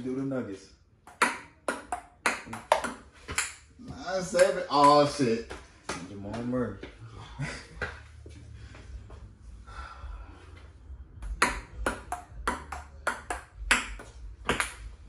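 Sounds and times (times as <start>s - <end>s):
ping pong ball clicking: 1.0s - 3.6s, 11.2s - 14.8s.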